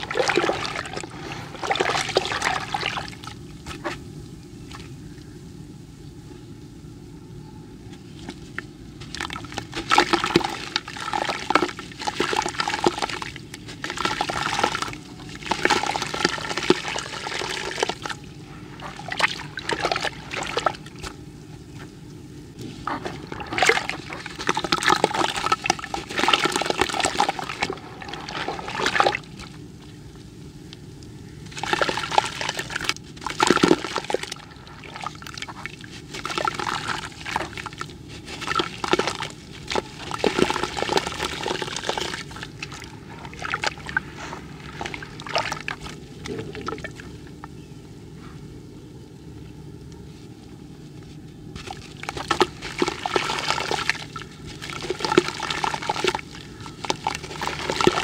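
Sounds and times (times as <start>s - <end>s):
water splashing in metal bucket: 0.0s - 3.3s, 9.0s - 18.2s, 22.9s - 29.6s, 31.4s - 44.0s, 44.6s - 47.1s, 51.6s - 58.0s.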